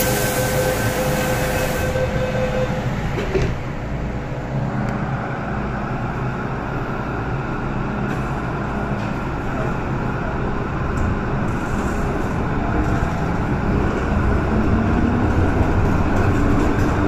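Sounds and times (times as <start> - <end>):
train air hiss: 0.0 - 2.7
train motors and wheels rumbling: 0.0 - 17.0.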